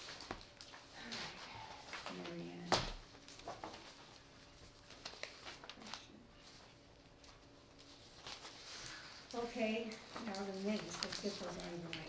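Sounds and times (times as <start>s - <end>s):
paper sheets rustling: 3.2s - 12.0s.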